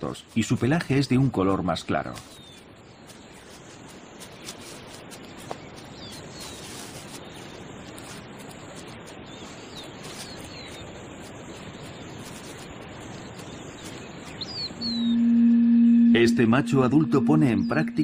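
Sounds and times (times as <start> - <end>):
outdoor ambience hiss: 0.0 - 18.0
faint bird chirps: 13.2 - 18.0.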